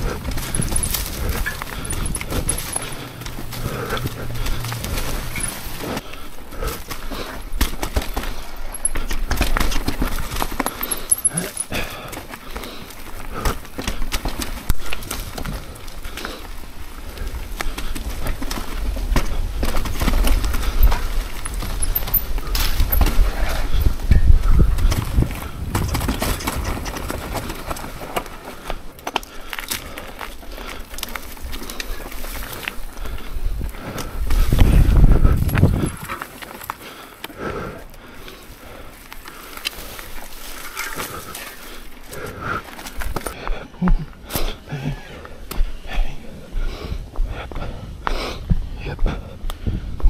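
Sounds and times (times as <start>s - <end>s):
bike clattering over rocks: 0.0s - 43.4s
wind on microphone: 17.1s - 27.7s, 33.0s - 36.2s, 46.5s - 50.0s.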